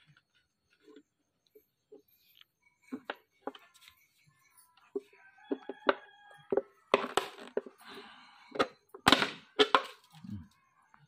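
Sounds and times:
sharp knocks and clatters: 4.9s - 7.8s.

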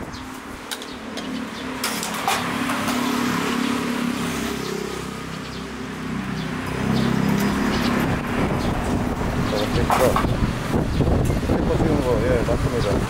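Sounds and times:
traffic engine hum: 0.0s - 13.0s.

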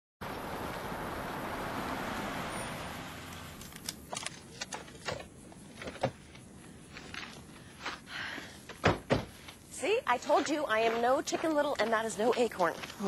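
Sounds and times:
rushing wind-like whoosh: 0.2s - 3.6s.

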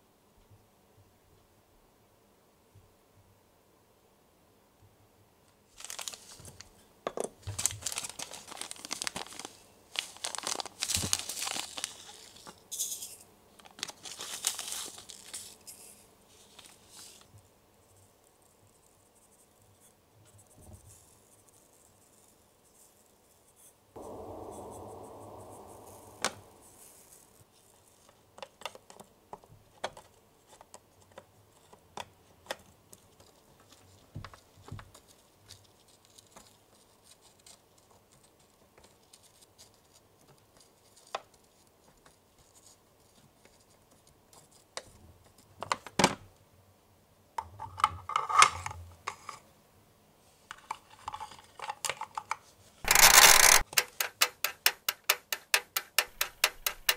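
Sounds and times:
sugar powder pouring hiss: 7.7s - 13.2s.

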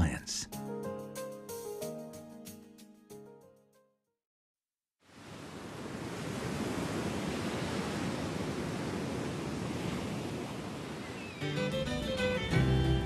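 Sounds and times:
music: 0.0s - 4.1s, 11.4s - 13.0s
ocean surf washing: 5.1s - 12.6s.

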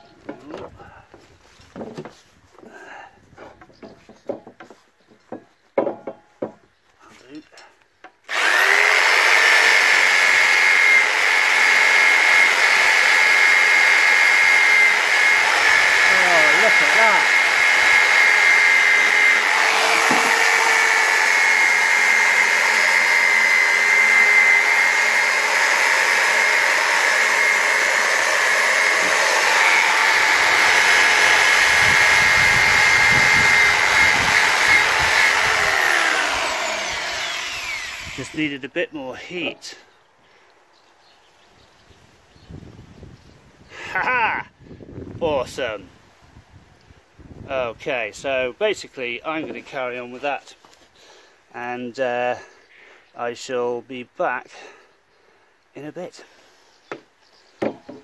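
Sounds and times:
electric drill whining: 8.2s - 38.5s.

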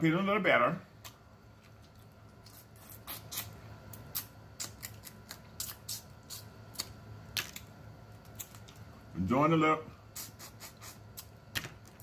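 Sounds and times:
mouth smacking and sucking: 2.4s - 7.0s, 10.1s - 11.3s.

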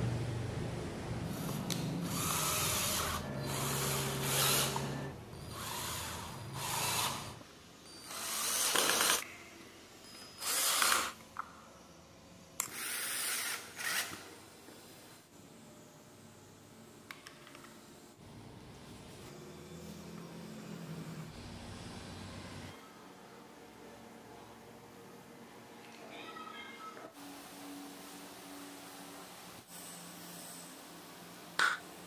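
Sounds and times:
cordless drill driving screws: 2.1s - 7.4s, 8.0s - 9.2s, 10.4s - 11.2s, 12.6s - 14.2s.

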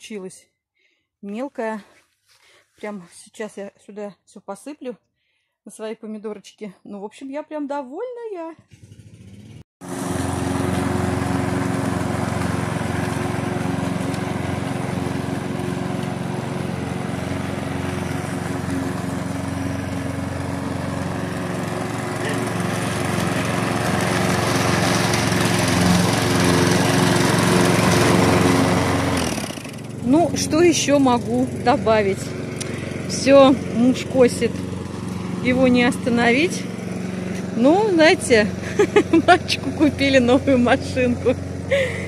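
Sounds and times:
lawn mower cutting grass: 8.7s - 42.0s.

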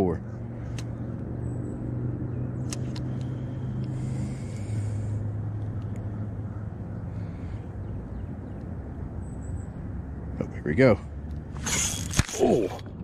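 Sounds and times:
low motor hum: 0.0s - 13.0s
faint clicks: 5.6s - 6.1s.

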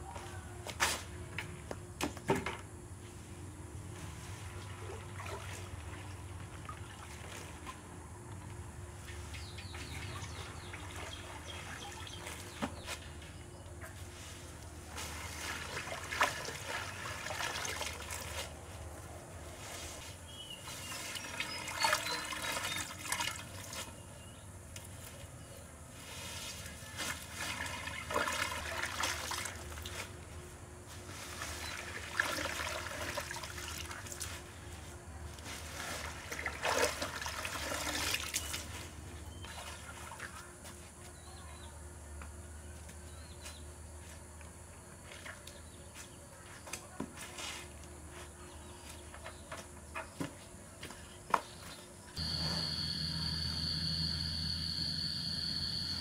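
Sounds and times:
water trickling and splashing: 4.4s - 8.0s, 9.1s - 12.6s, 15.0s - 18.5s, 20.7s - 23.9s, 27.2s - 30.1s, 31.4s - 34.4s, 35.7s - 40.5s.

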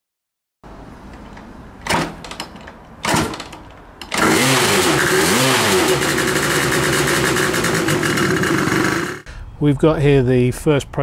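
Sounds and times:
scooter engine kick-started and revving: 1.8s - 9.3s.

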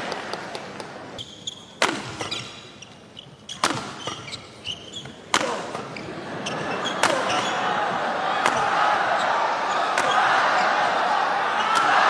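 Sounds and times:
rackets hitting shuttlecock: 0.6s - 11.0s, 11.6s - 12.0s
shoes squeaking on court: 1.1s - 7.7s, 9.0s - 12.0s.

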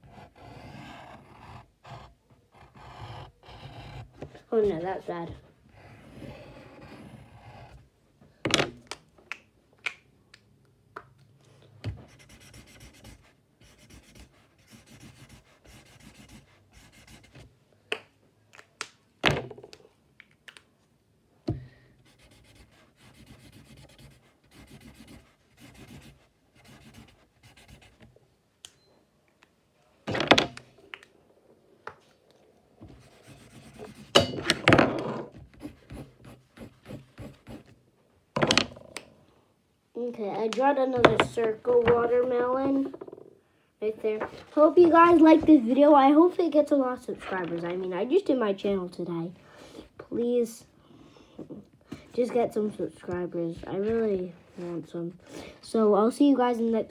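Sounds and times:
pencil scratching on paper: 0.0s - 7.8s, 12.0s - 17.5s, 22.0s - 28.1s, 32.9s - 34.3s, 35.0s - 37.8s
knocks of objects on table: 38.4s - 38.8s.

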